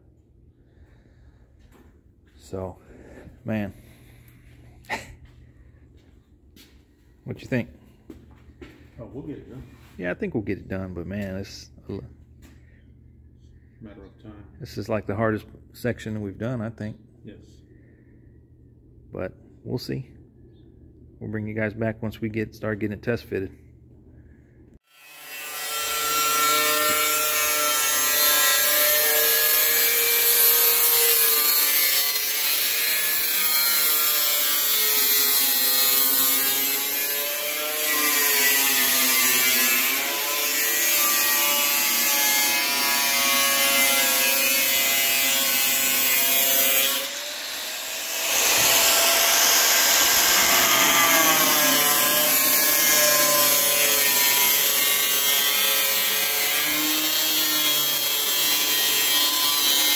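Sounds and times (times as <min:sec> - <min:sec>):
angle grinder on sheet metal: 0:24.8 - 0:59.9.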